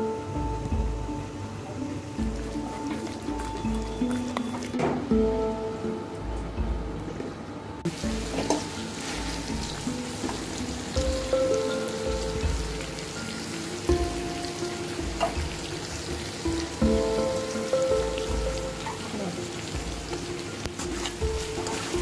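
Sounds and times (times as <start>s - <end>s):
background music with held notes: 0.0s - 22.0s
chicken sizzling in a pan: 7.9s - 22.0s.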